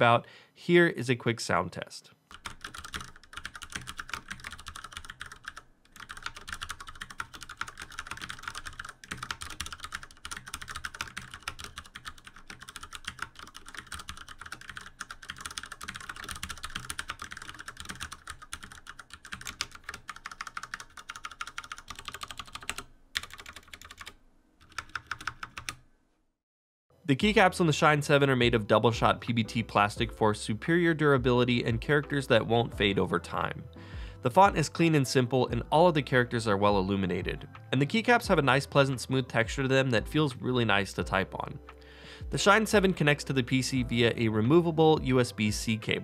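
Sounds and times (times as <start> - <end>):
mechanical keyboard typing: 2.3 - 25.8.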